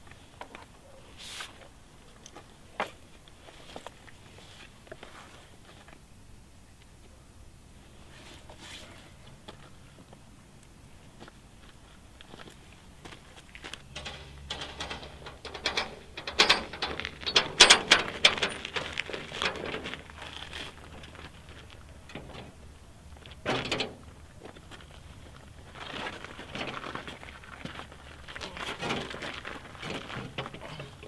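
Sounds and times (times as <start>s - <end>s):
footsteps crunching on gravel: 11.1s - 15.0s, 18.0s - 22.1s, 24.4s - 30.6s.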